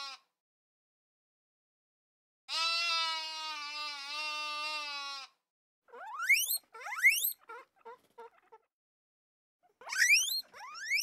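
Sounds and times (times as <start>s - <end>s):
sheep bleating: 2.5s - 5.4s
guinea pig wheeking: 5.9s - 8.7s, 9.6s - 11.0s.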